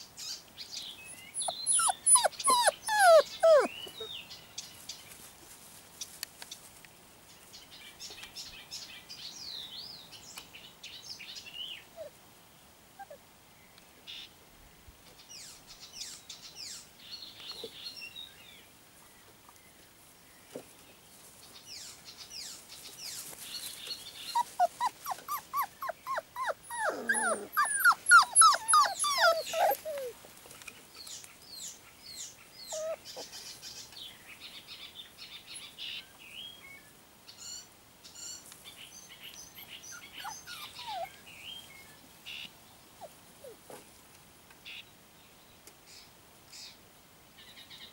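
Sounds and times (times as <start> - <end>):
faint puppy whimpers: 1.2 - 4.1, 13.0 - 13.2, 24.2 - 30.2, 32.6 - 33.6, 39.5 - 41.2, 43.0 - 43.8
puppies whining and yipping: 1.2 - 4.1, 24.3 - 30.2, 32.6 - 33.3, 39.5 - 41.2, 43.0 - 43.8.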